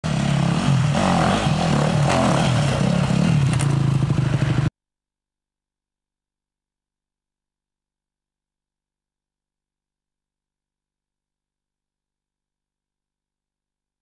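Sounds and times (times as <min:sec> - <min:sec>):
dirt bike engine revving: 0:00.0 - 0:04.7.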